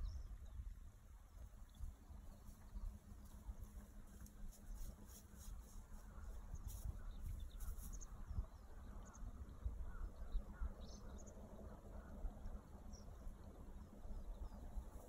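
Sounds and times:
distant bird chirps: 1.3 - 15.0.

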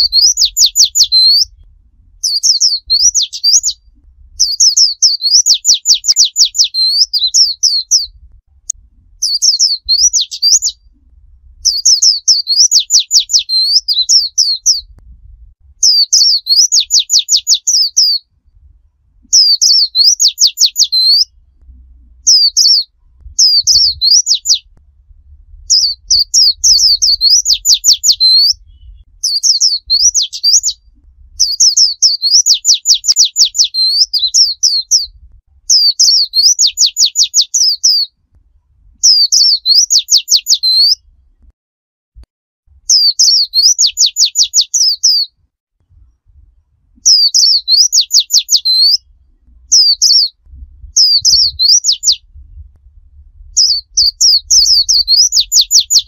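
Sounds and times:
bird singing whistled phrases: 0.0 - 1.6, 2.2 - 8.2, 9.2 - 10.9, 11.6 - 14.9, 15.8 - 18.3, 19.3 - 21.4, 22.2 - 24.7, 25.7 - 38.1, 39.0 - 41.0, 42.9 - 45.3, 47.0 - 49.1, 49.7 - 52.2, 53.6 - 56.0.

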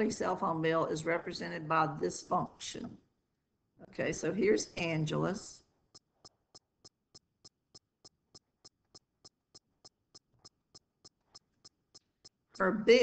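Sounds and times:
faint ticking: 5.8 - 13.0.

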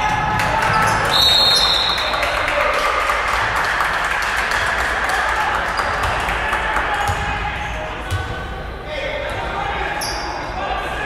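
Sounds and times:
hubbub of voices in a gym: 0.0 - 11.0
referee's whistle: 1.1 - 2.3.

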